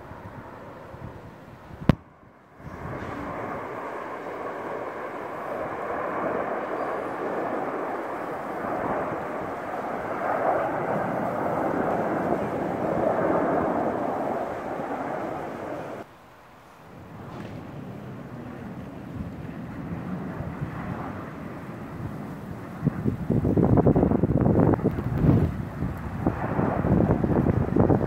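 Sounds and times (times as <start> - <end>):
jet engines rumbling overhead: 0.0 - 28.0.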